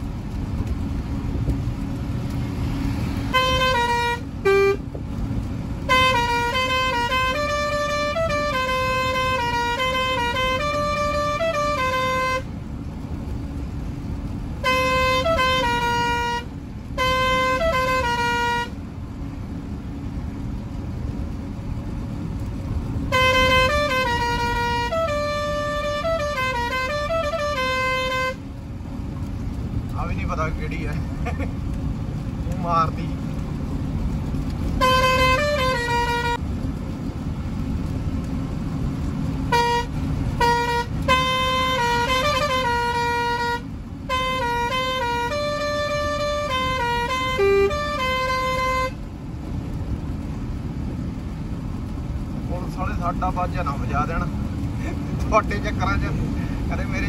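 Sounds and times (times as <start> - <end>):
truck engine and road noise: 0.0 - 57.0
truck musical horn: 3.1 - 4.9, 5.8 - 12.6, 14.6 - 18.8, 23.0 - 28.5, 34.7 - 36.5, 39.4 - 49.1.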